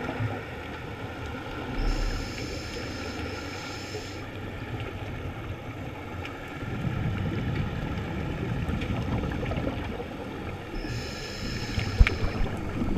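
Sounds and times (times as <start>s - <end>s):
underwater exhale bubbling: 1.7s - 4.3s, 6.6s - 12.9s
regulator inhale hissing: 1.8s - 4.3s, 10.7s - 12.6s.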